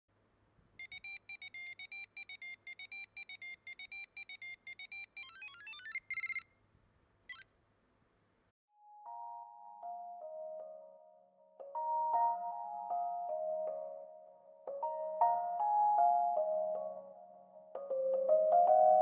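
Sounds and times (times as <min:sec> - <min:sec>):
electronic beeping jingle: 0:00.8 - 0:06.4.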